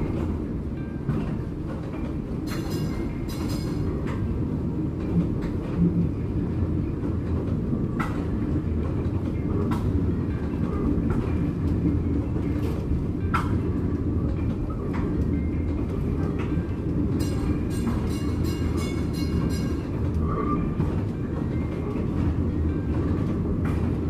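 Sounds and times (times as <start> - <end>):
streetcar wheels rumbling: 0.0 - 24.0.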